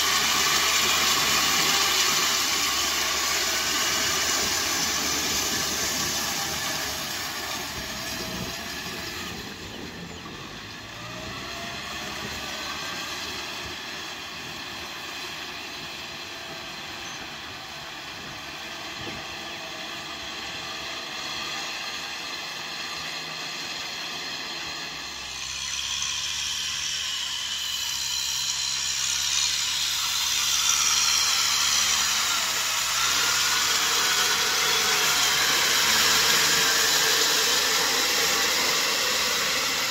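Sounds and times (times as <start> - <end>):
rotary tiller churning mud: 0.0 - 39.9
tractor diesel engine running: 0.0 - 39.9.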